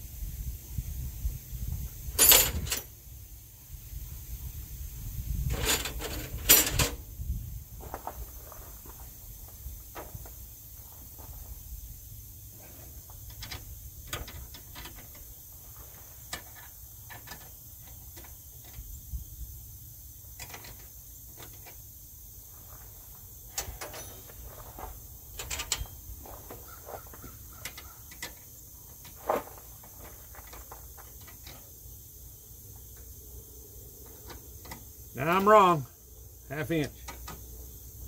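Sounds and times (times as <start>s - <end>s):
hand tools clicking and clinking: 2.2s - 2.9s, 23.5s - 29.2s.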